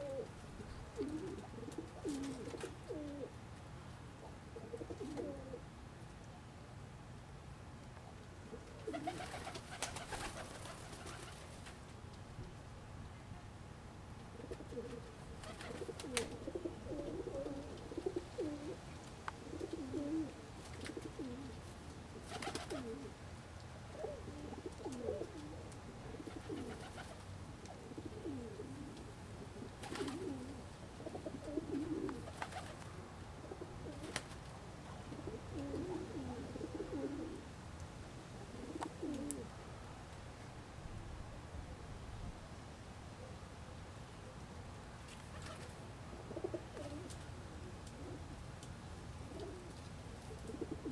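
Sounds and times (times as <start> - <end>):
pigeons cooing: 0.0 - 3.4, 4.2 - 5.6, 8.4 - 11.5, 14.3 - 23.2, 23.9 - 34.4, 35.0 - 37.5, 38.4 - 39.6, 45.3 - 48.3, 49.2 - 50.9.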